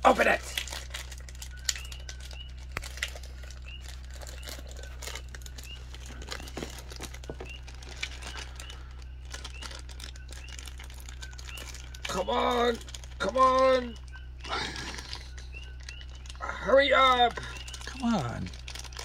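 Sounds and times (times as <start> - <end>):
plastic bag crinkling: 0.0 - 19.0
steady low hum: 0.0 - 19.0.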